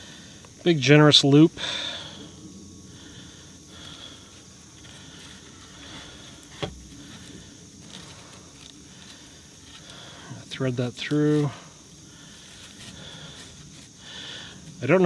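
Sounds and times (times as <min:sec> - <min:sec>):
rustling of nylon line: 0:03.0 - 0:14.9.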